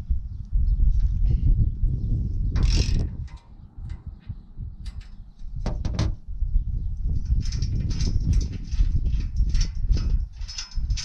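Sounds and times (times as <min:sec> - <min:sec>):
heavy uneven low rumble: 0:00.0 - 0:11.0
small clicks and scrapes: 0:07.3 - 0:11.0.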